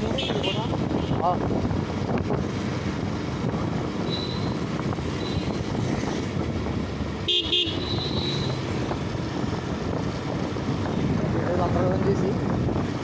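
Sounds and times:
motorcycle road and wind noise: 0.0 - 13.0
vehicle horn beeping: 7.3 - 8.6.

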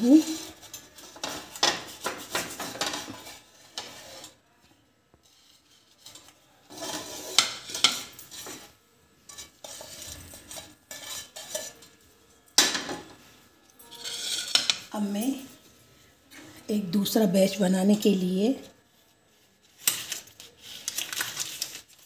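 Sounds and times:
utensils clattering on pan and plates: 0.0 - 4.4, 5.8 - 15.6.

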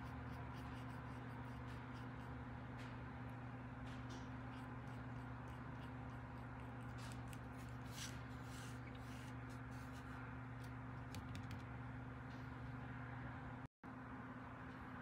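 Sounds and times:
low electrical hum: 0.0 - 15.0
paintbrush ticks and paper rustles: 3.9 - 11.7.

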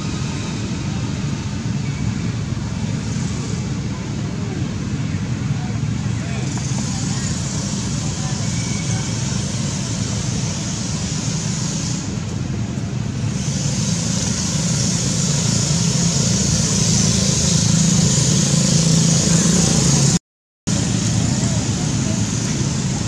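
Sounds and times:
high hiss: 6.3 - 12.3.

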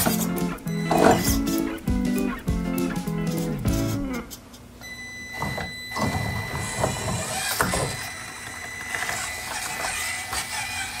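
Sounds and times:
small electric motor whining: 5.5 - 11.0.

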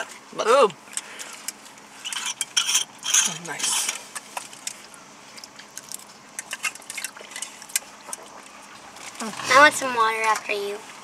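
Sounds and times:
plastic forks scraping containers: 2.0 - 4.2.

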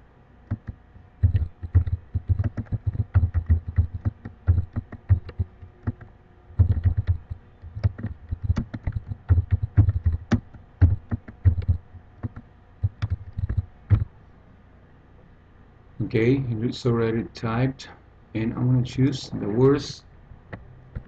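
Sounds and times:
typing on computer keyboard: 0.5 - 14.1.

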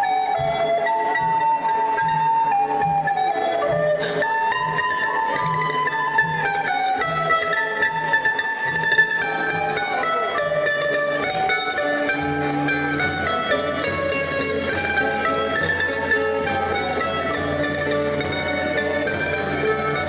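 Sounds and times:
acoustic guitars and mandolins playing: 3.0 - 20.0.

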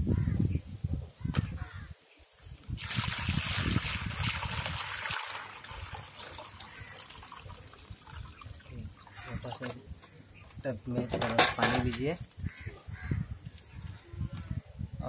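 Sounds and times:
water pouring into plastic tub: 2.8 - 9.8.

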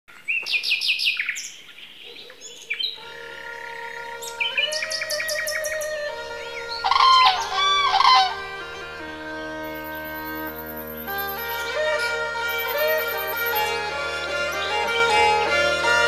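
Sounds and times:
songbirds chirping: 0.1 - 16.0
sustained musical drone: 3.3 - 16.0.

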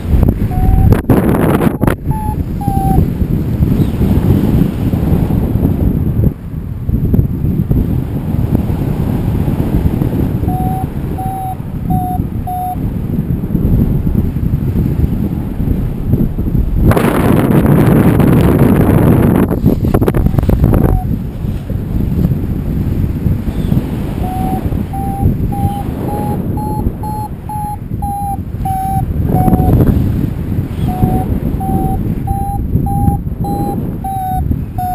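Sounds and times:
wind buffeting microphone: 0.0 - 34.9
short electronic beeps: 0.5 - 3.0, 10.4 - 12.8, 20.2 - 21.1, 24.2 - 29.8, 30.8 - 34.9.

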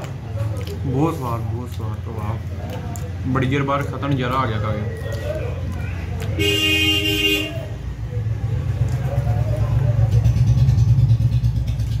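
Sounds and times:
engine rumbling: 0.0 - 12.0
vehicle horn toot: 6.4 - 7.7.

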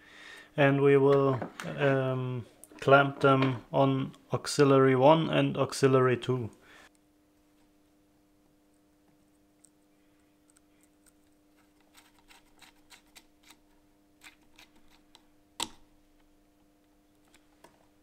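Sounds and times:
faint steady hum: 0.0 - 18.0
screwdriver clicks and scratches: 11.6 - 13.6.

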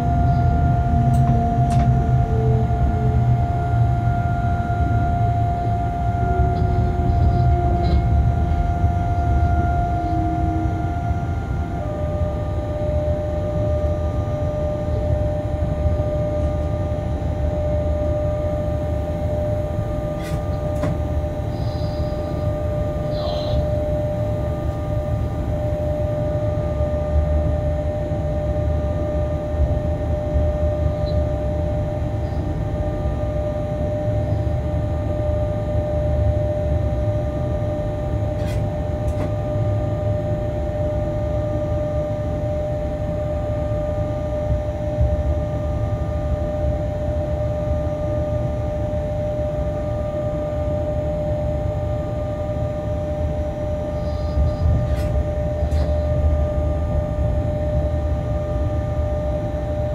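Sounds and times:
locomotive rumble: 0.0 - 27.5
constant whine: 0.0 - 59.9.

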